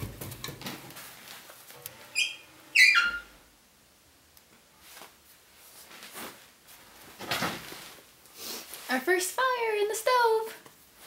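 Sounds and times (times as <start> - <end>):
wood fire crackling: 0.0 - 2.3
short squeal falling in pitch: 2.1 - 3.4.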